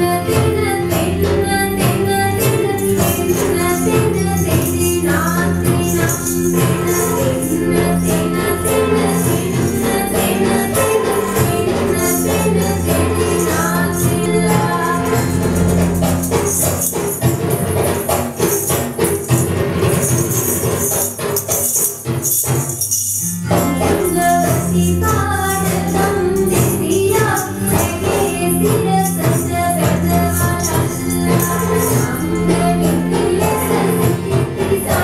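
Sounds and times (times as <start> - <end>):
jingling hand percussion: 0.0 - 35.0
devotional singing: 2.7 - 16.6.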